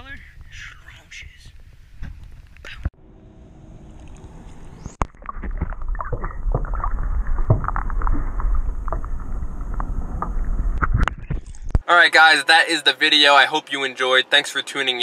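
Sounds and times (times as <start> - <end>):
muffled underwater sloshing: 4.5 - 11.8
underwater clicks and bubbles: 5.0 - 11.8.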